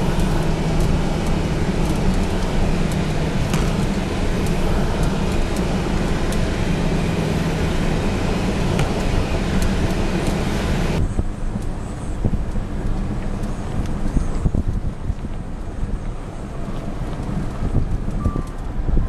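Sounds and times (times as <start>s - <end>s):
vehicle engine and tyre noise: 0.0s - 19.0s
wind buffeting microphone: 0.0s - 19.0s.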